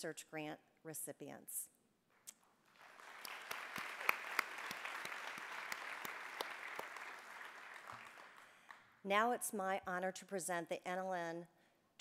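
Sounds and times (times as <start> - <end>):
audience applauding: 2.7 - 8.8.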